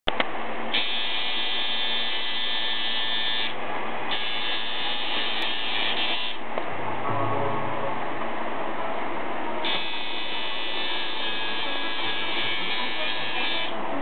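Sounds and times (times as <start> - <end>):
tattoo machine buzzing: 0.7 - 6.4, 9.6 - 13.7.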